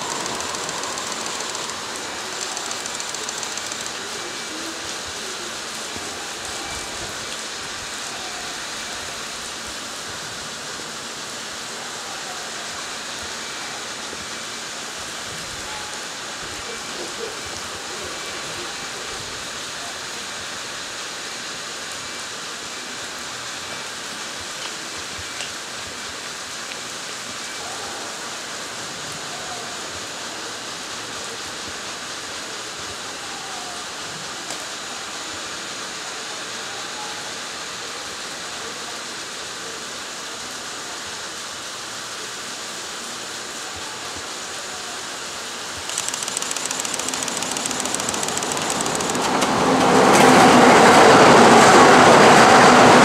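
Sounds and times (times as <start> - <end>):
approaching train: 0.0 - 53.0
hiss of falling water: 0.0 - 53.0.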